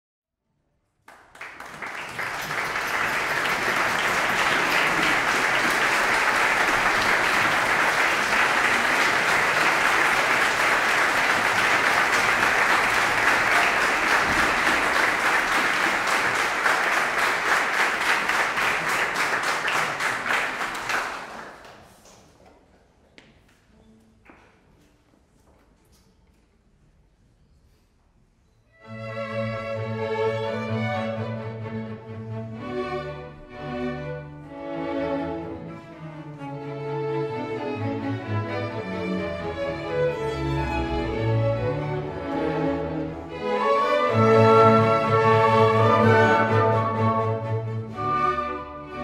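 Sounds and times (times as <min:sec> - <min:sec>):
audience applauding: 0:01.0 - 0:22.3.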